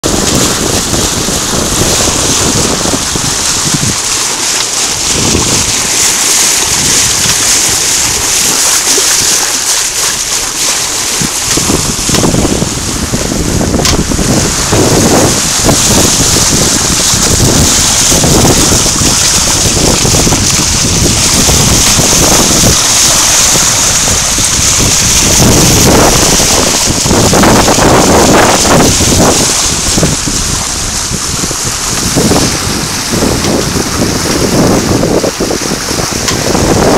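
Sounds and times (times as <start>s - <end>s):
water washing along boat bow: 0.0s - 36.9s
wind buffeting microphone: 0.0s - 36.9s.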